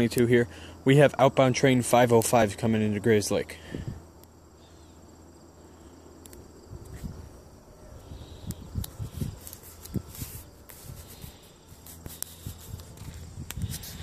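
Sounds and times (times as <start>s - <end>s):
wind noise on microphone: 3.7s - 4.0s, 6.6s - 14.0s
sharp clicks: 6.2s - 7.0s.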